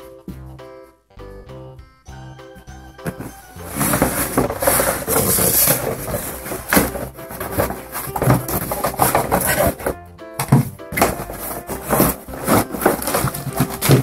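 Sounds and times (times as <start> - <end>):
cardboard box rubbing and scraping: 3.1 - 14.0.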